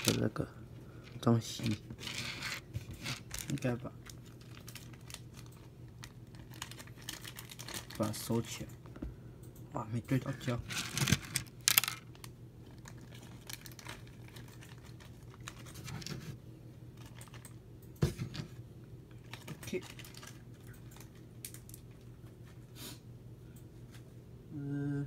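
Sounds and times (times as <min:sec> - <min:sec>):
faint low hum: 0:00.0 - 0:25.0
plastic pieces clicking and tapping: 0:10.8 - 0:12.1.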